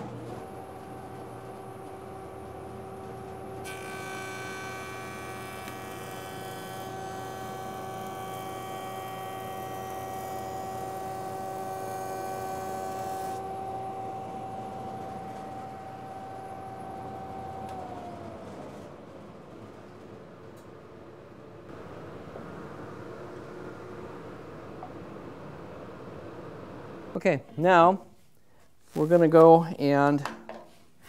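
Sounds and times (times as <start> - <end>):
jointer motor hum: 0.0 - 19.0.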